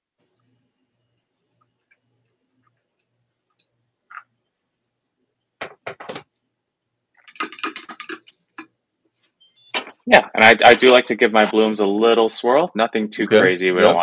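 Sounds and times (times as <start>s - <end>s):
glass clicks and clatter: 7.2s - 8.7s.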